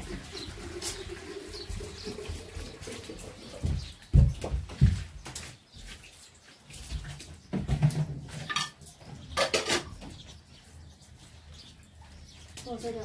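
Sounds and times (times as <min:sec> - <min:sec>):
household things clattering: 0:06.9 - 0:10.3.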